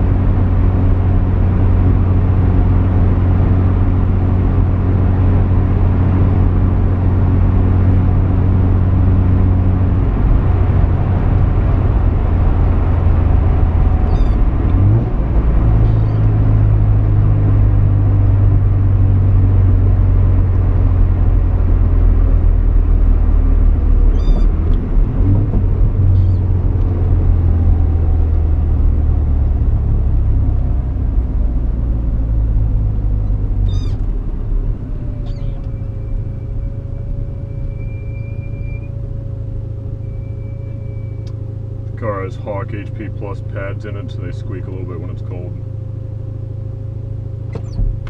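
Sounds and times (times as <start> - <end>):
car engine drone from inside: 0.0 - 48.0.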